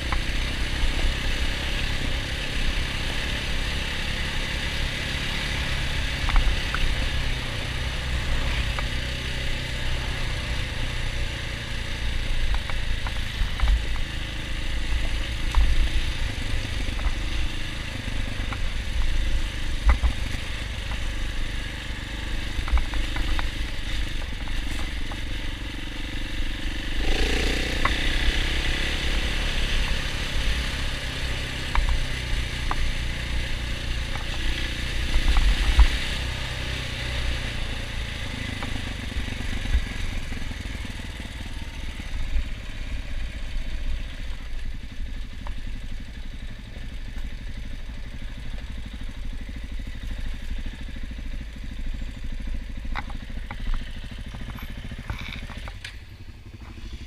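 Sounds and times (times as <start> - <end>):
motorcycle engine running: 0.0 - 57.0
motorcycle clicks and rattles: 12.4 - 14.2, 22.5 - 25.5, 52.3 - 57.0.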